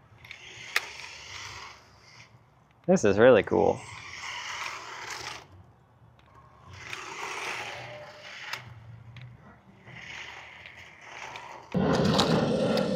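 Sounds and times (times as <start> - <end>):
small electric motor whirring: 0.2 - 2.4, 3.7 - 5.6, 6.7 - 8.9, 9.8 - 12.9
tyres scraping on concrete: 0.2 - 2.4, 3.5 - 5.6, 6.6 - 12.9.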